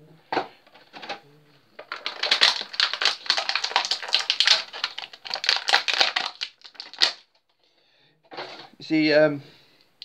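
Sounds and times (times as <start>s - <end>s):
plastic packaging crinkling: 1.8s - 7.4s.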